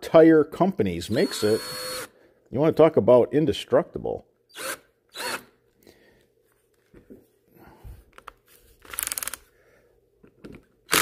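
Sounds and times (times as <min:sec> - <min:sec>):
cordless drill buzzing: 0:01.1 - 0:02.1, 0:04.5 - 0:05.6.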